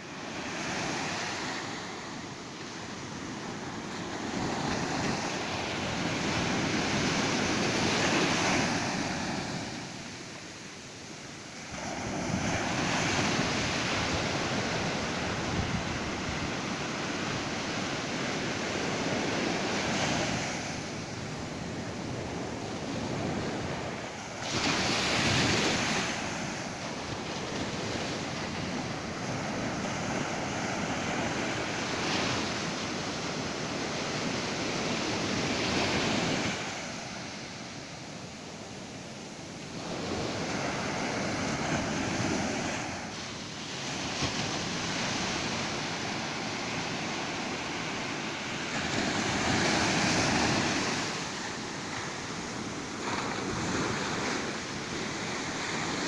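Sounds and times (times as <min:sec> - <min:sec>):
waves breaking on a beach: 0:00.0 - 0:56.0.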